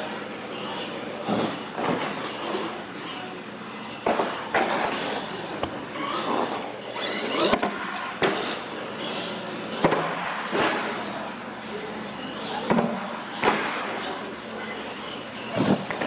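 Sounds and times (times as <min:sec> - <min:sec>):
rc truck motor whining: 0:04.8 - 0:09.8, 0:14.0 - 0:16.0.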